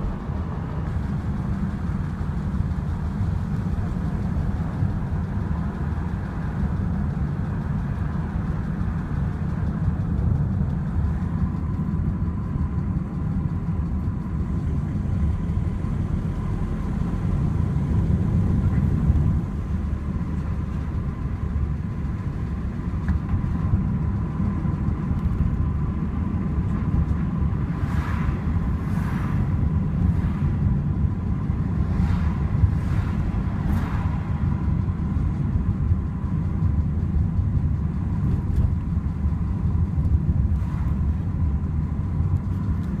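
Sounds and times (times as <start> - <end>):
car interior road and engine rumble: 0.0 - 43.0
passing cars whooshing: 26.6 - 35.6, 40.2 - 43.0.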